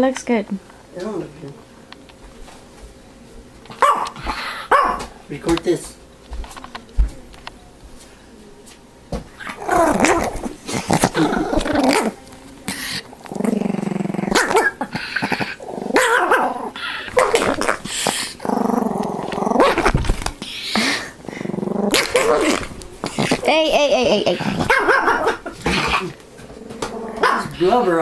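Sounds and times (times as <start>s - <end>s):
dog barking: 3.8s - 5.1s, 14.3s - 14.8s, 16.0s - 17.5s, 24.6s - 26.1s, 27.2s - 27.6s
dog growling: 9.4s - 28.0s.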